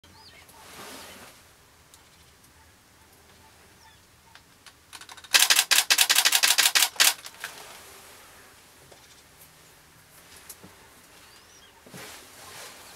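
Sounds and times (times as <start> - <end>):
camera shutter clicks: 5.0 - 7.4.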